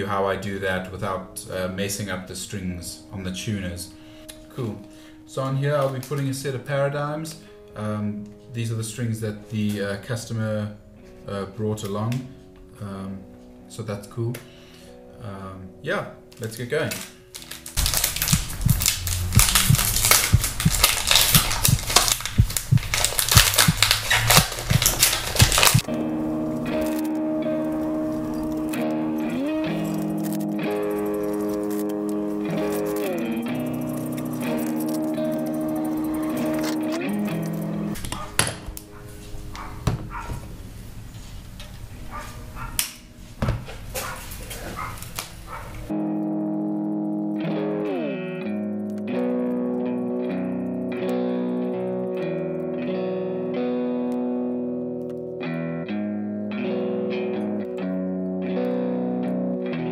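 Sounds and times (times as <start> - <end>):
foil packet crinkling and tearing: 16.9 - 25.9, 29.7 - 37.6.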